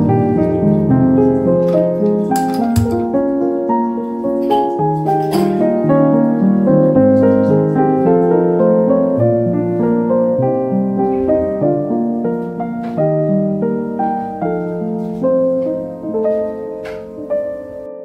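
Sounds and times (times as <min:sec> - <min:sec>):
gentle piano music: 0:00.0 - 0:18.0.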